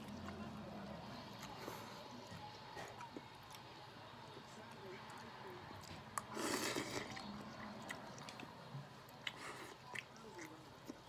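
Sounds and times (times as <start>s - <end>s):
person chewing: 5.1s - 8.5s, 9.1s - 11.0s
person slurping noodles: 6.3s - 7.1s.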